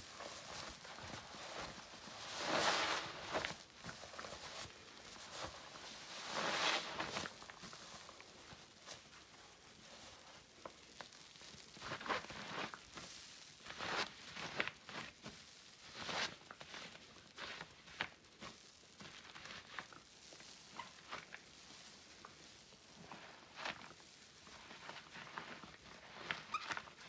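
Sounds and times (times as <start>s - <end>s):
foam crackling: 0.0s - 27.0s
wet sponge squelching: 0.1s - 9.0s.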